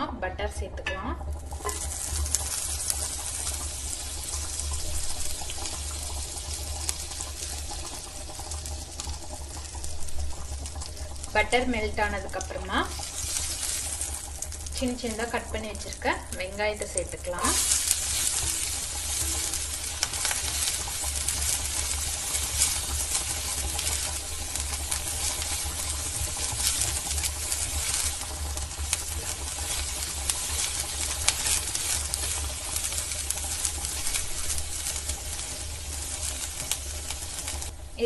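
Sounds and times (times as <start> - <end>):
onions sizzling in butter: 0.0 - 38.0
spatula scraping a pan: 1.5 - 5.8, 17.4 - 37.7.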